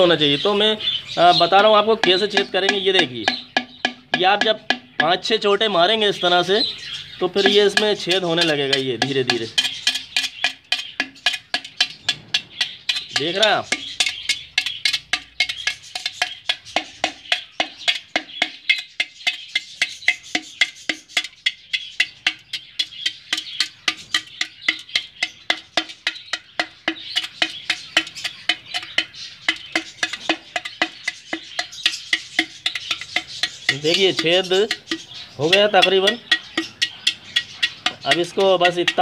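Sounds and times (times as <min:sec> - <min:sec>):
iron rod tapping clay pot: 0:01.2 - 0:39.0.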